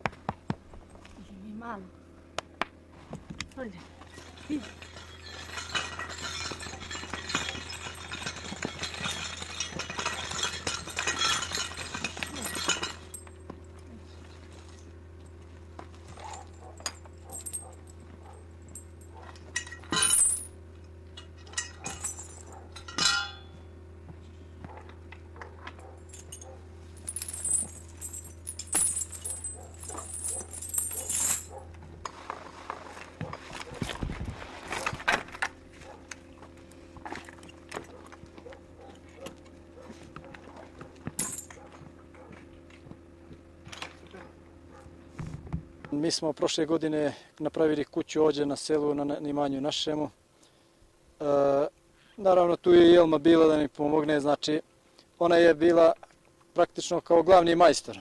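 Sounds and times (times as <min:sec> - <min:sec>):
steady low hum: 0:00.0 - 0:47.9
harness chains clinking and jingling: 0:04.1 - 0:13.4, 0:16.2 - 0:20.5, 0:21.5 - 0:23.6, 0:25.8 - 0:31.7, 0:40.6 - 0:42.3.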